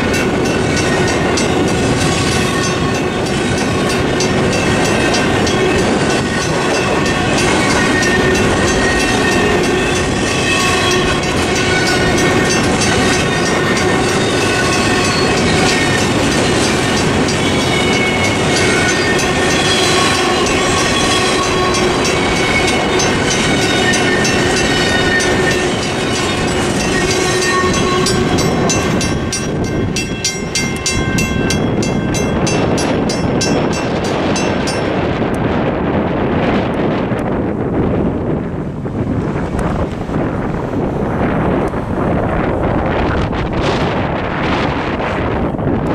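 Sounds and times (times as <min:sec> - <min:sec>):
train wheels clattering over rail joints: 0:00.0 - 0:35.0
crossing signal bell ringing: 0:00.0 - 0:35.2.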